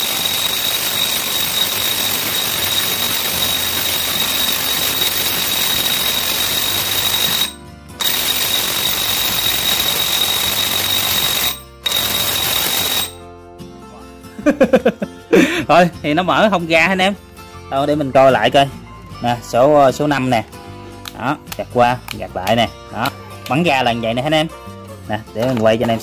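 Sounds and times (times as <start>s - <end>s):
impact wrench hammering: 0.0s - 13.2s.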